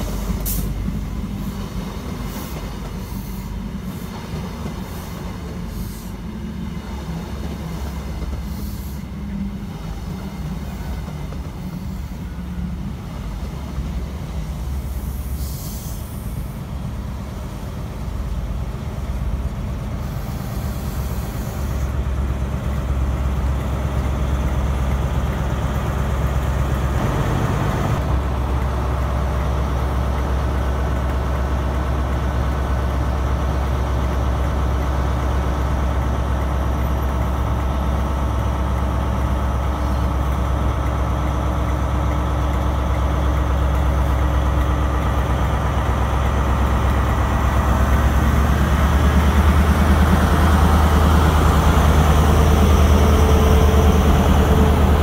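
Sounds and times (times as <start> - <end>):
diesel locomotive engine humming: 0.0 - 55.0.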